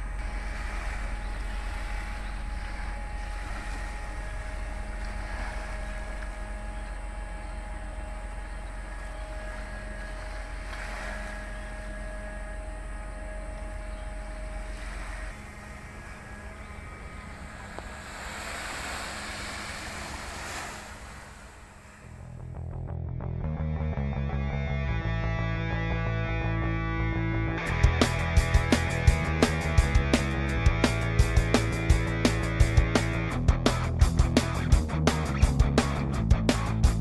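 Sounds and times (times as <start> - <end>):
faint steady tones: 0.0 - 22.7
ship machinery humming: 0.0 - 23.0, 24.9 - 37.0
wind rumble on microphone: 0.0 - 23.4.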